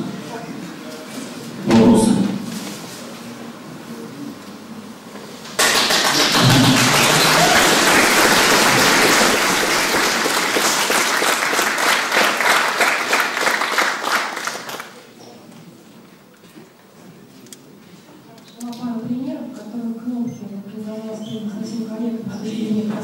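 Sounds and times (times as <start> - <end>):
audience applauding: 5.6 - 15.1.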